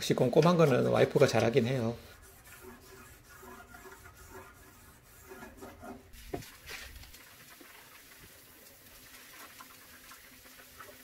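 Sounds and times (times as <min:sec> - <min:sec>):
scrubbing metal: 0:00.2 - 0:07.1.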